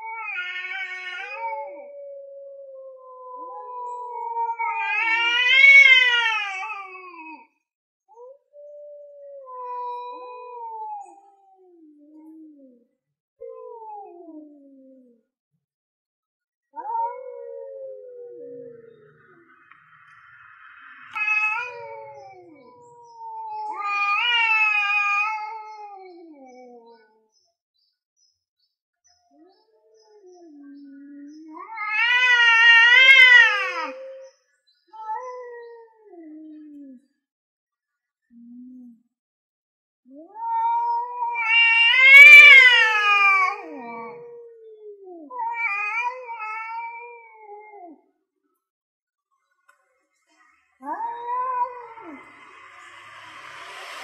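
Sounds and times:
cats yowling: 0.0 - 7.5, 8.1 - 12.8, 13.4 - 15.2, 16.8 - 20.2, 21.0 - 27.2, 30.1 - 34.3, 34.9 - 37.0, 40.1 - 48.0, 50.8 - 53.5.

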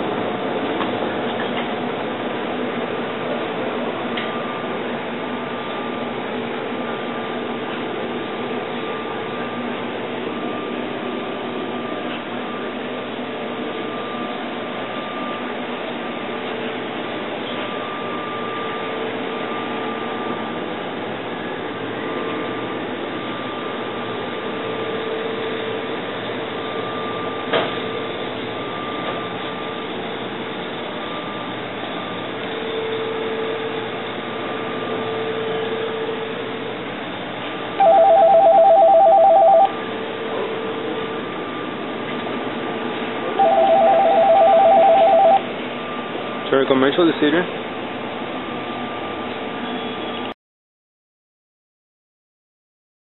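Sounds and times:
bakery machinery humming: 0.0 - 50.4
pitched machine tones: 37.8 - 39.8, 43.3 - 46.1.

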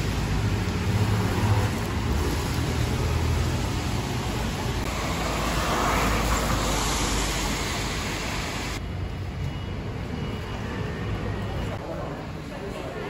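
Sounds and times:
cars and scooters passing: 0.0 - 13.0.

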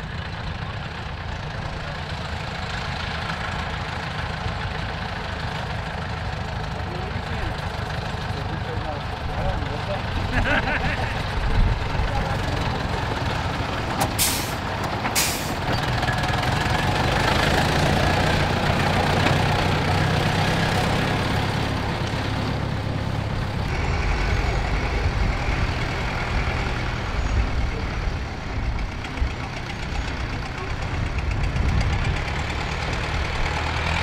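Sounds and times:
tractor diesel engine under load: 0.0 - 34.0
short hisses: 14.2 - 14.6, 15.2 - 15.6.

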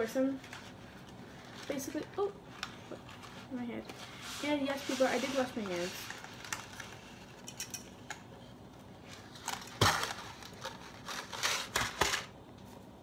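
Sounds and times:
dry spaghetti scraping cardboard box: 3.4 - 6.3.

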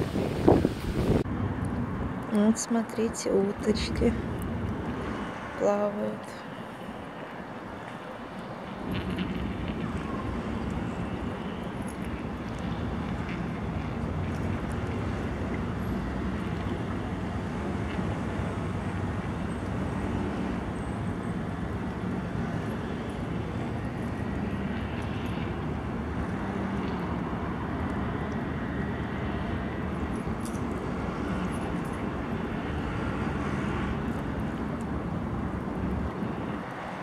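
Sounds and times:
strong wind on microphone: 0.0 - 2.2.

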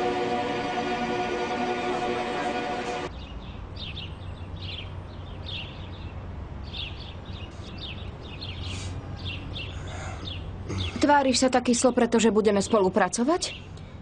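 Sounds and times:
background music: 0.0 - 3.1
low steady hum: 0.0 - 3.1
small birds chirping: 3.1 - 14.0.

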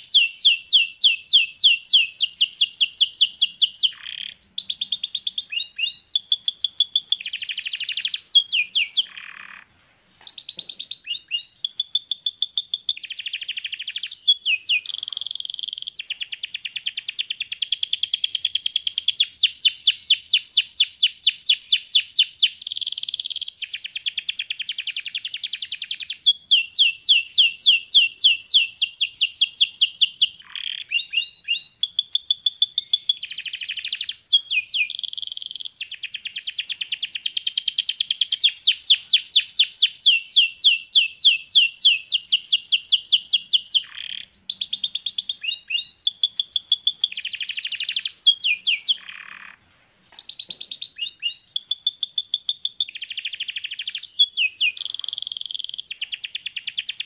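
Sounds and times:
canary singing: 0.0 - 57.0.

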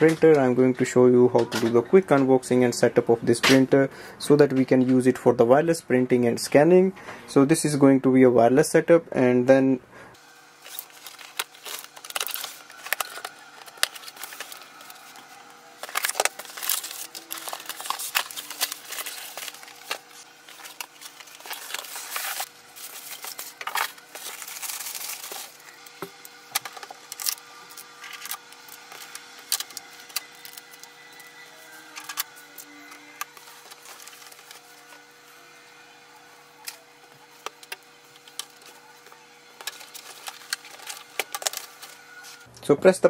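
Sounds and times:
cardboard and plastic rustling: 10.6 - 35.0, 37.2 - 42.5.

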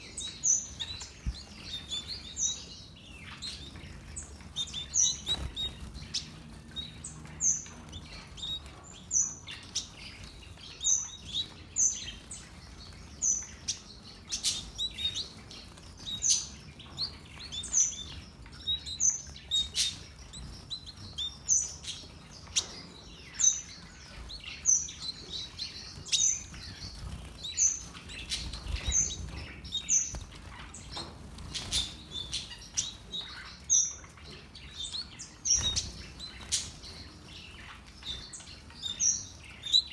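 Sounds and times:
finches chirping: 0.0 - 39.9.

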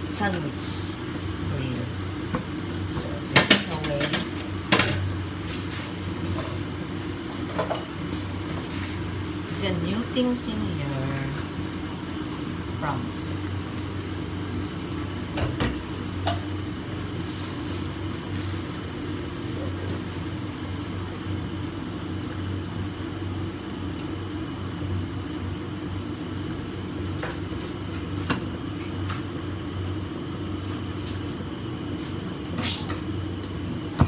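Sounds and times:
steady low hum: 0.0 - 34.0.

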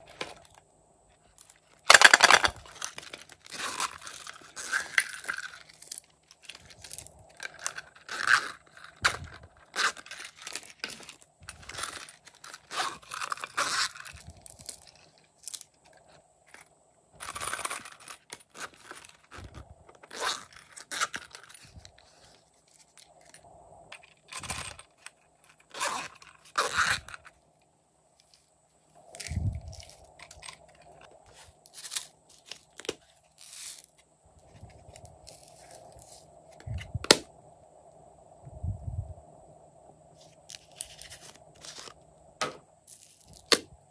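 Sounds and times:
cases scraping and handling: 1.3 - 27.3, 29.1 - 37.2, 40.2 - 43.6
zippers opening and closing: 6.7 - 14.7, 17.2 - 21.7, 25.6 - 27.3.

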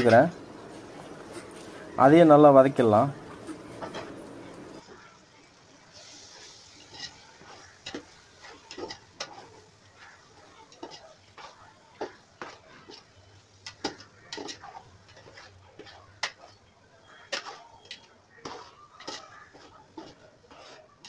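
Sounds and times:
meat sizzling in oil: 4.8 - 21.0
spoon scraping metal pot: 6.4 - 21.0.

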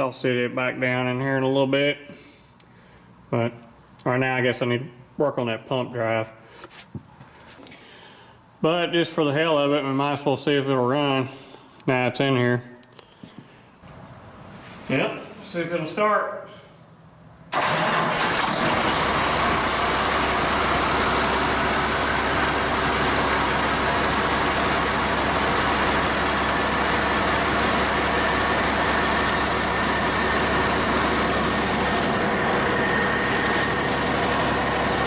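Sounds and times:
diesel engine idling: 17.5 - 35.0.

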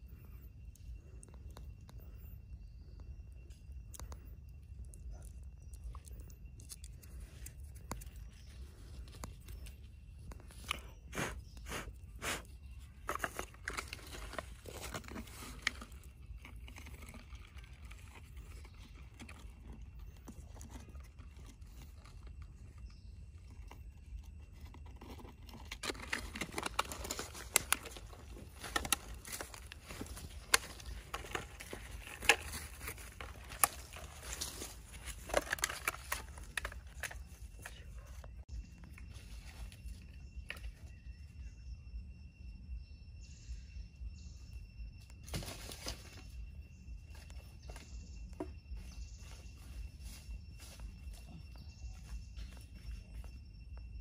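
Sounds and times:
hands crumbling dry soil: 5.1 - 23.0, 23.6 - 38.3
plastic bottle crinkling and clicking: 25.0 - 37.7.

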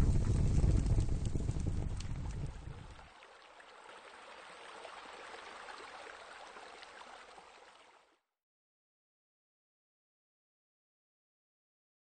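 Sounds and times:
low rumble: 0.0 - 3.0
running water: 0.0 - 8.2.

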